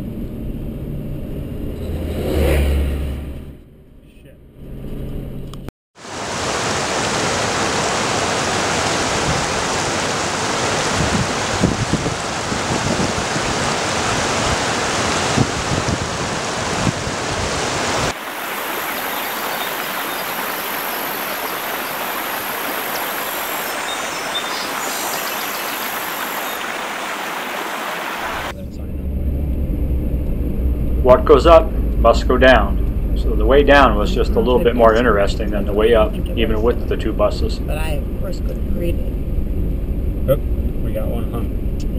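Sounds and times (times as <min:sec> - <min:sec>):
waterfall roaring: 0:06.0 - 0:28.6, 0:33.2 - 0:37.9.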